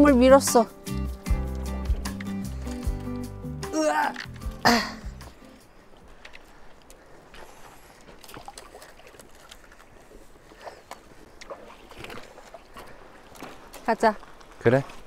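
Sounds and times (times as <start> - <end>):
water sloshing: 0.0 - 15.0
thin ice clicking and crackling: 2.1 - 4.6.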